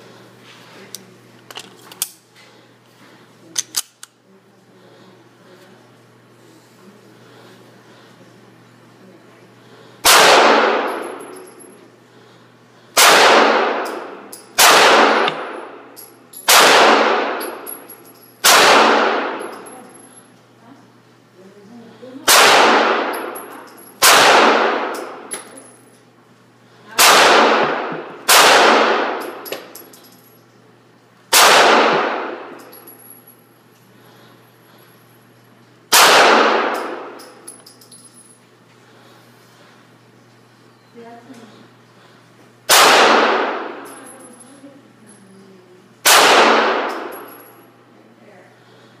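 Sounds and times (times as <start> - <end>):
pistol shots echoing indoors: 10.0 - 11.7, 12.9 - 20.1, 22.2 - 25.5, 27.0 - 29.8, 31.3 - 33.1, 35.9 - 37.8, 42.7 - 44.2, 46.0 - 47.6.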